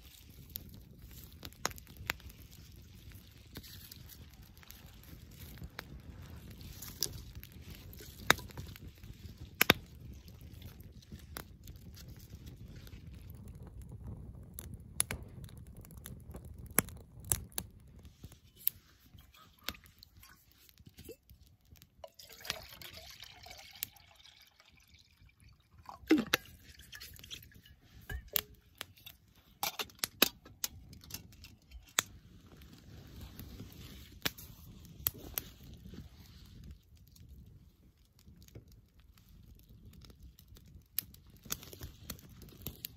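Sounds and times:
campfire crackling and popping: 0:00.0 - 0:42.9
water pouring into metal pot: 0:22.0 - 0:29.1.

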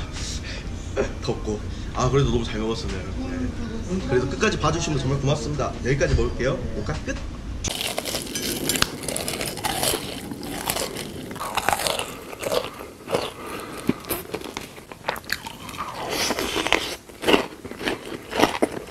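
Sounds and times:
crunchy bites and chewing: 0:07.7 - 0:18.9.

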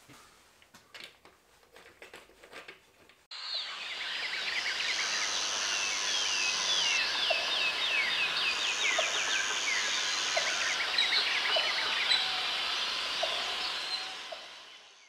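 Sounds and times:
very high whine: 0:03.3 - 0:15.0.

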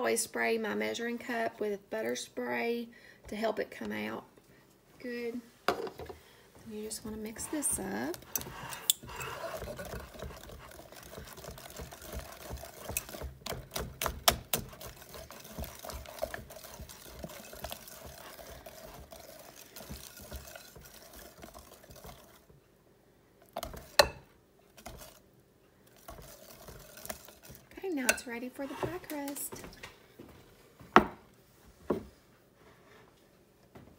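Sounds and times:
whisk stirring thick filling: 0:06.7 - 0:22.6, 0:23.4 - 0:29.5.

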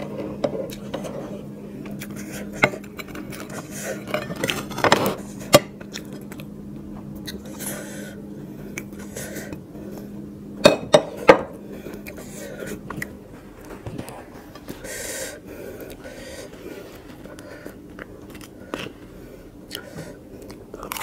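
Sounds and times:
steady low hum: 0:00.0 - 0:21.0
plates clinking: 0:10.6 - 0:11.6.

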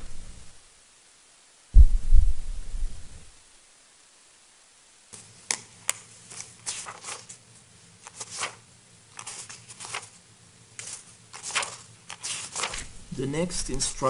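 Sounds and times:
low electrical hum: 0:00.0 - 0:14.0
paper pages rustling: 0:05.2 - 0:14.0.

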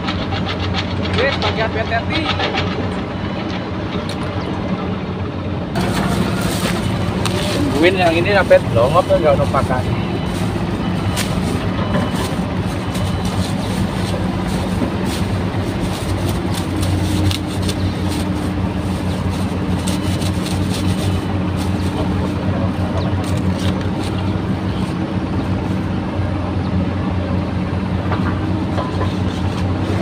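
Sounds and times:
low engine drone: 0:00.0 - 0:30.0
plastic bag crinkling: 0:09.8 - 0:22.3.

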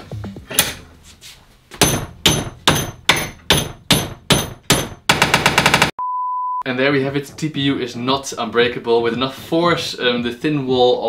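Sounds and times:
hammer blows ringing: 0:01.8 - 0:05.3.

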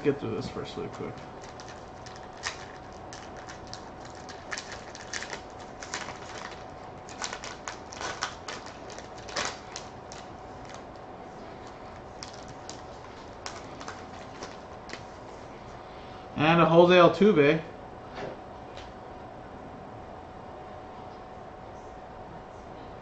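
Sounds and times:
faint steady hum: 0:00.0 - 0:23.0
cards rustling and clicking: 0:01.0 - 0:10.8, 0:11.6 - 0:15.1
card pack wrapper crinkling: 0:01.1 - 0:11.0, 0:11.6 - 0:15.1.

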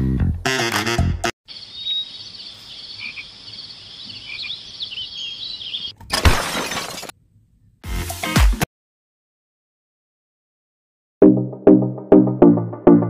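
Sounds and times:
high chirping and trilling chorus: 0:01.5 - 0:05.9.

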